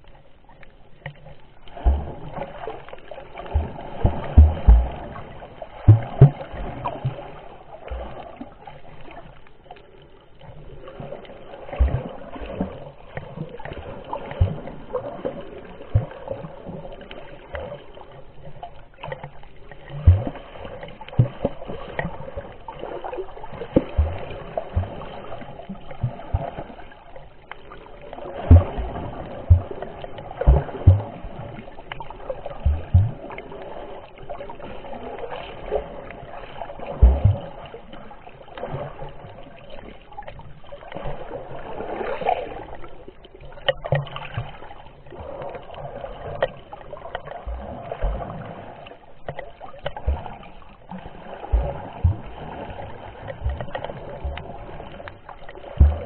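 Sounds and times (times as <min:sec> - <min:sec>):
muffled underwater water movement: 0:00.0 - 0:56.0
low knocks underwater: 0:01.0 - 0:09.2, 0:11.8 - 0:16.7, 0:19.0 - 0:22.6, 0:23.5 - 0:26.8, 0:27.5 - 0:33.6, 0:36.8 - 0:37.8, 0:43.6 - 0:56.0.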